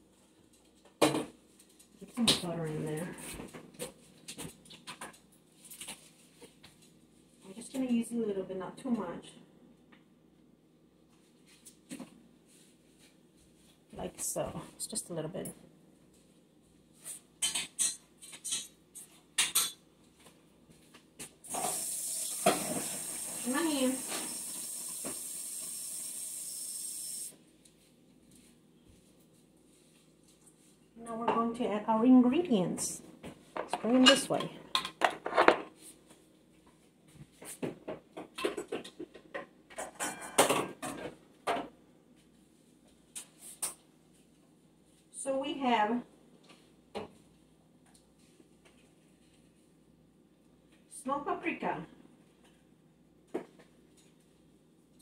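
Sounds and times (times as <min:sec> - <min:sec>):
metal kitchenware clinking: 0:17.4 - 0:18.7, 0:39.8 - 0:40.8.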